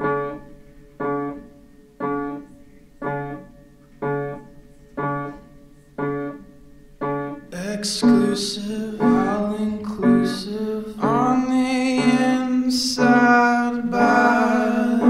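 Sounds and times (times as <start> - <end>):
keyboard chords: 0.0 - 15.0
music with singing: 7.6 - 15.0.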